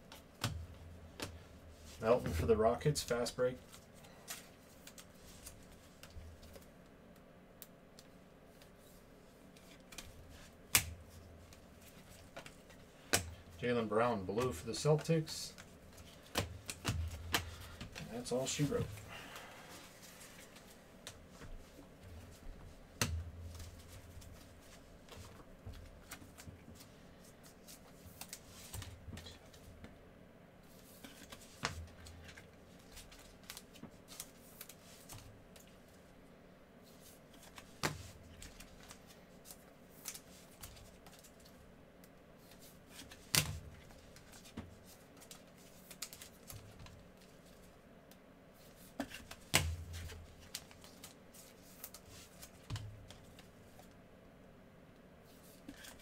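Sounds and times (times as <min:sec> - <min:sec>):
cards sliding and rustling: 0:55.3 - 0:56.0.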